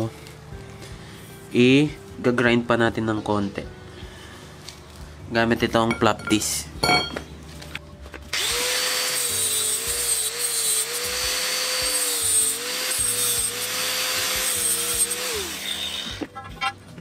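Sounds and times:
angle grinder grinding steel: 8.4s - 16.6s.

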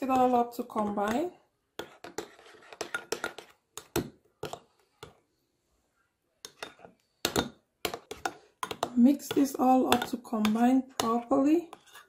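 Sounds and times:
metal spoon scraping ceramic bowl: 1.8s - 5.2s, 6.4s - 12.0s.

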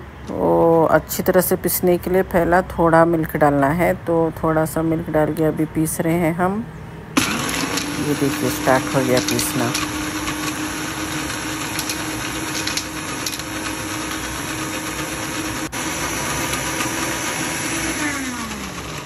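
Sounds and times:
blender motor running: 7.2s - 19.0s.

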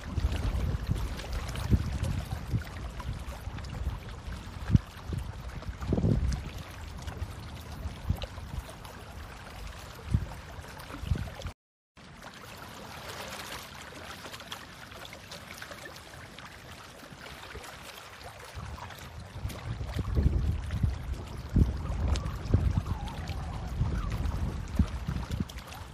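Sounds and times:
wind buffeting thumps: 0.0s - 8.6s, 18.6s - 25.9s
shallow water: 0.0s - 25.9s
wind: 0.0s - 25.9s.

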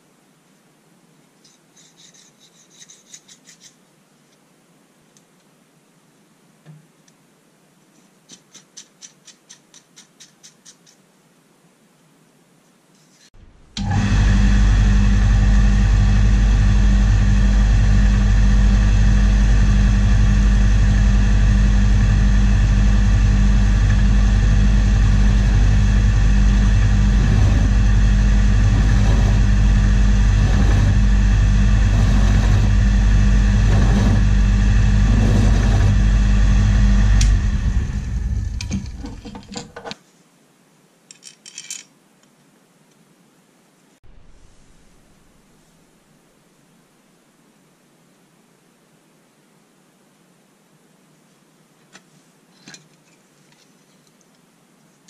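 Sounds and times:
metal lathe humming: 13.8s - 39.8s.

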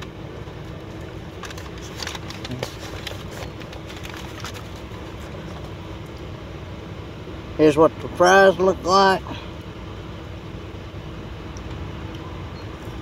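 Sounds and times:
rustling and crackling handling: 0.0s - 6.3s
low car cabin hum: 0.0s - 13.0s.

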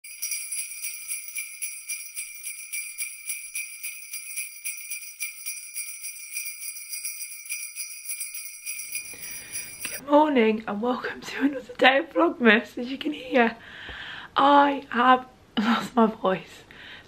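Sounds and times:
sleigh bells jingling: 0.0s - 10.0s.

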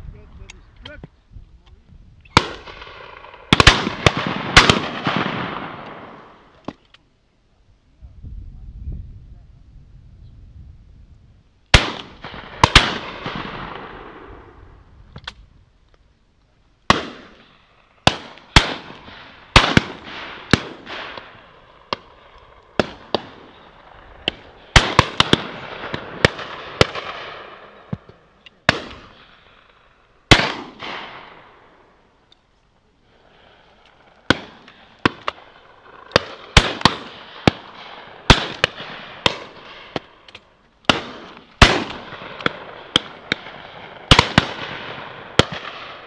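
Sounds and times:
shotgun shots echoing: 2.3s - 6.8s, 11.7s - 14.5s, 16.9s - 29.4s, 30.3s - 31.8s, 34.2s - 40.3s, 40.9s - 46.0s.

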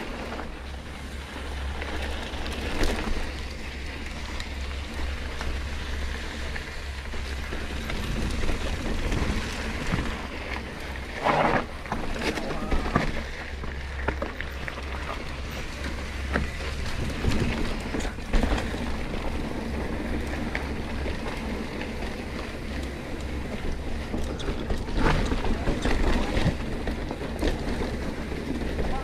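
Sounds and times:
tyres rushing over dirt: 0.0s - 29.0s
bike knocks and rattles: 7.1s - 29.0s.

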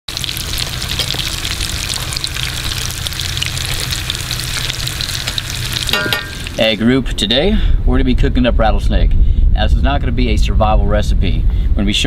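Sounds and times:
meat frying in hot oil: 0.1s - 6.9s.

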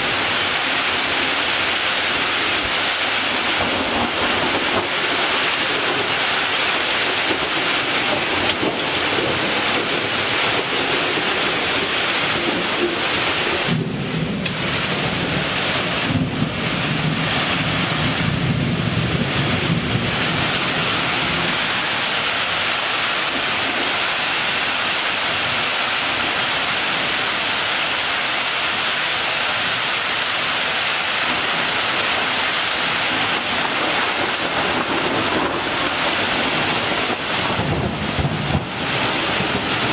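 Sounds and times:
steady rain falling: 0.0s - 39.9s
low rumble of thunder: 3.4s - 21.6s, 33.2s - 39.9s.

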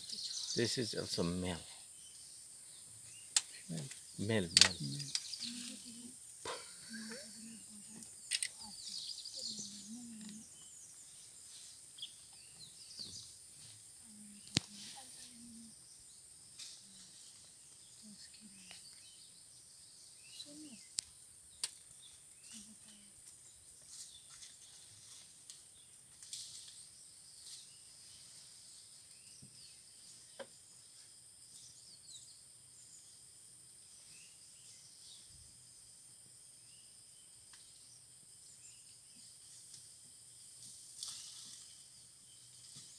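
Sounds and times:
insects droning: 0.0s - 42.9s
sharp clicks: 4.5s - 5.3s, 8.0s - 8.7s.

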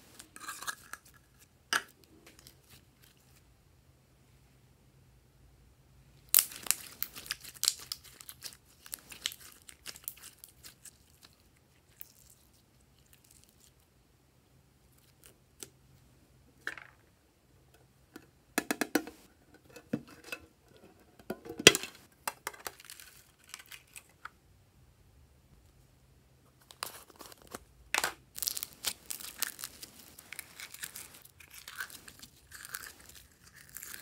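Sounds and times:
slime crackling and popping: 6.3s - 12.4s, 28.3s - 34.0s.

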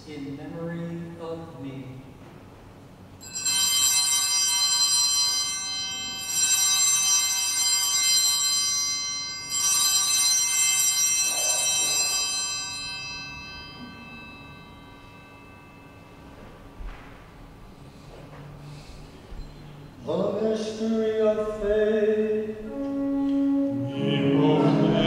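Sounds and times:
altar bells ringing: 3.2s - 16.7s.

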